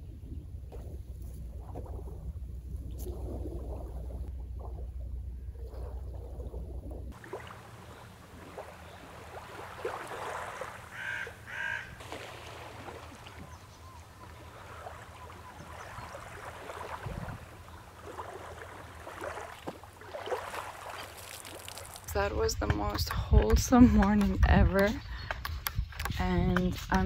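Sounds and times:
water lapping and splashing: 0:00.0 - 0:26.1
bird calling: 0:07.8 - 0:12.0, 0:12.9 - 0:18.1.

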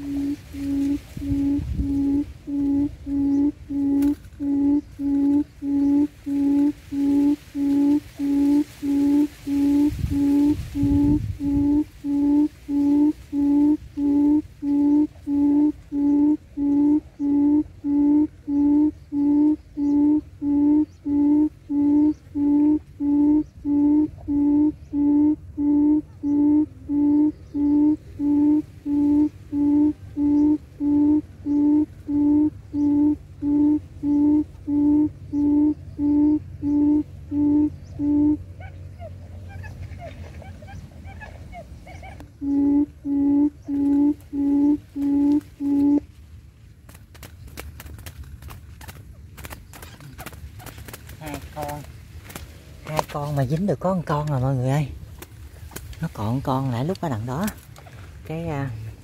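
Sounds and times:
electronic quail call hooting: 0:00.0 - 0:39.7, 0:41.9 - 0:46.0.

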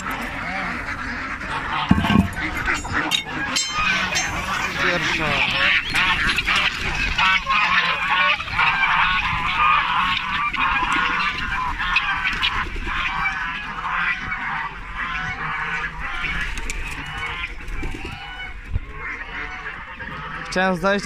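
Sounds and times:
ducks calling: 0:00.0 - 0:21.0
geese honking: 0:00.0 - 0:21.0.

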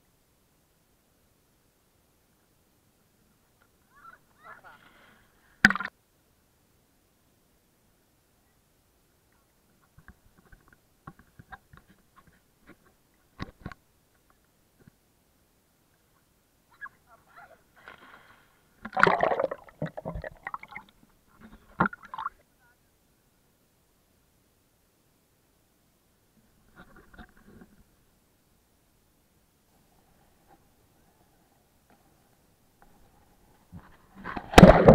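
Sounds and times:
loud splash into water: 0:34.4 - 0:34.9.

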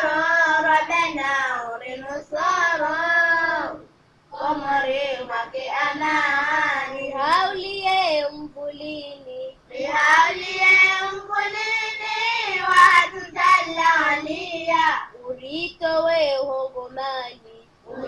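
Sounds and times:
child singing: 0:00.0 - 0:18.0.

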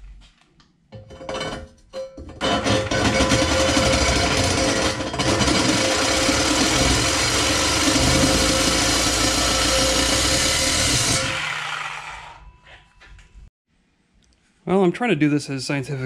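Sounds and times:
power tool cutting steel: 0:02.4 - 0:12.5.

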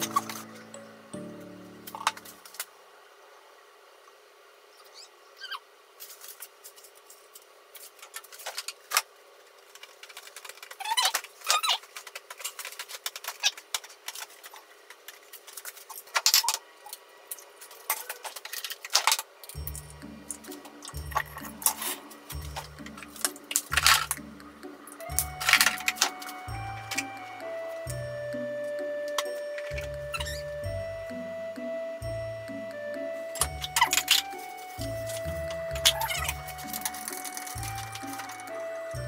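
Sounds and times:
background music: 0:00.0 - 0:02.4, 0:19.6 - 0:39.0.

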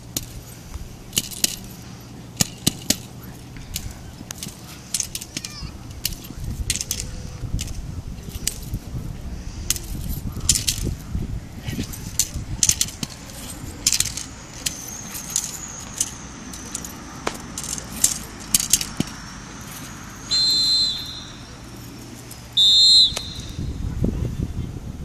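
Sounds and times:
metal chain collar jingling: 0:00.0 - 0:08.8, 0:09.7 - 0:11.1, 0:11.7 - 0:23.6
short loud whistle blasts: 0:20.2 - 0:21.6, 0:22.5 - 0:23.8.

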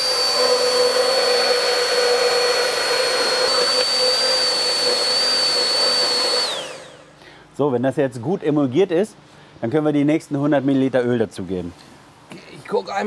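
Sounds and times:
immersion blender whining: 0:00.0 - 0:07.1.

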